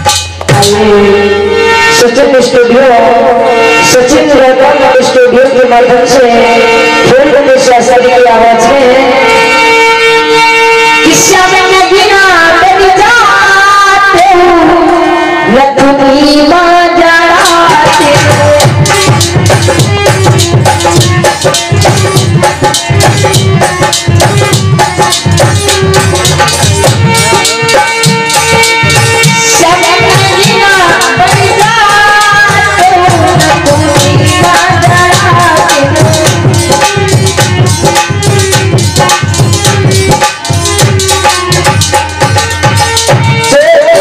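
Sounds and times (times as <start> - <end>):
hand drums beating: 0.0 - 1.0, 17.3 - 44.0
woman singing into a microphone: 0.5 - 24.0, 29.0 - 40.6, 42.4 - 44.0
held instrumental note: 17.4 - 43.8.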